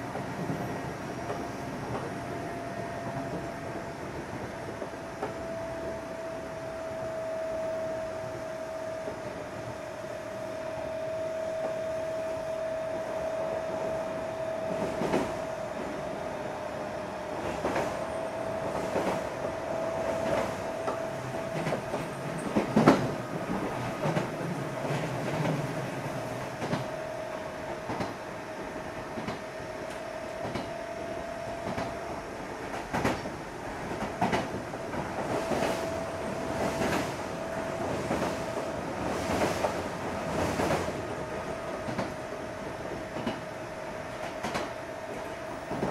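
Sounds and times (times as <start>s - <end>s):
train wheels clacking over rail joints: 18.6s - 25.6s, 32.7s - 37.2s, 42.9s - 43.5s, 44.2s - 45.9s.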